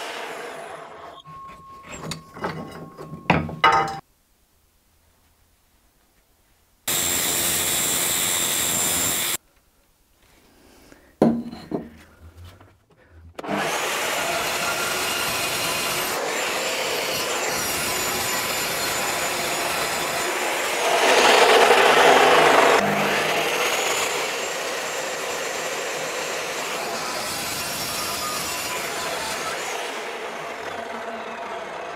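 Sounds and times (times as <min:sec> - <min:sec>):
power tool cutting steel: 0:06.9 - 0:09.4, 0:13.4 - 0:31.9.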